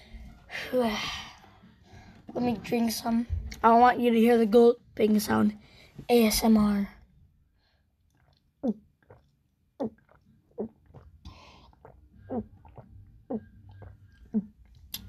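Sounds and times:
person gulping a drink: 8.0s - 15.0s.

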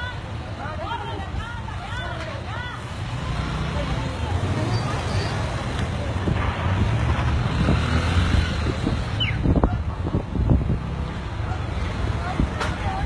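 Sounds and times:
truck engines rumbling: 0.0s - 13.0s
wind buffeting microphone: 5.9s - 13.0s.

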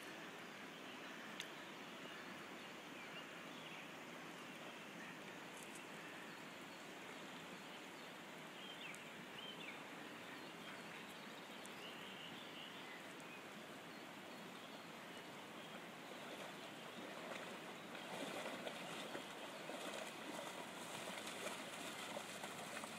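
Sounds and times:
river running over stones: 0.0s - 22.9s
dog splashing through water: 16.2s - 22.9s.

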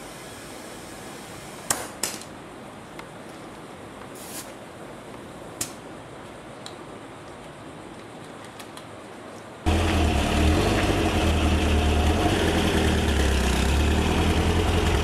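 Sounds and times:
air hissing from tyre valve: 0.0s - 1.8s, 4.1s - 4.6s.

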